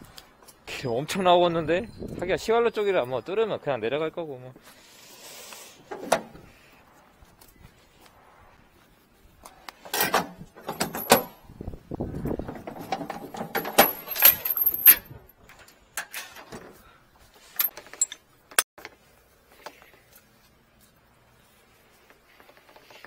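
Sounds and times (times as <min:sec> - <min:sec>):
metal gear clattering: 0:10.6 - 0:11.4, 0:12.7 - 0:15.2.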